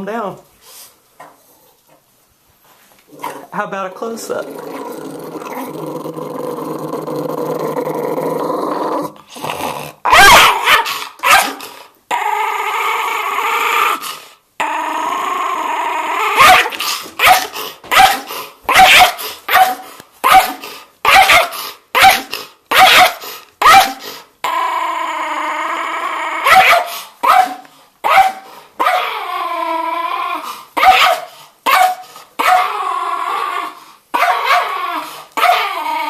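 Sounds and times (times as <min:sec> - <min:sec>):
dog growling: 0:03.1 - 0:03.6, 0:04.2 - 0:18.4, 0:29.0 - 0:30.6, 0:32.6 - 0:36.0
dog snarling barks: 0:09.4 - 0:12.3, 0:16.2 - 0:24.2, 0:26.4 - 0:29.2, 0:30.8 - 0:32.9, 0:34.2 - 0:35.9.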